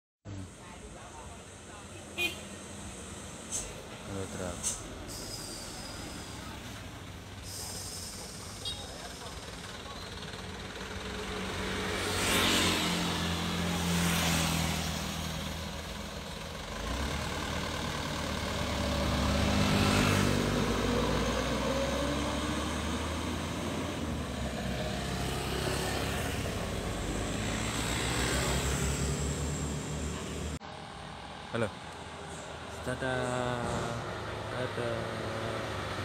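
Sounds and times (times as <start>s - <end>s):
truck diesel engine accelerating: 2.6s - 36.0s.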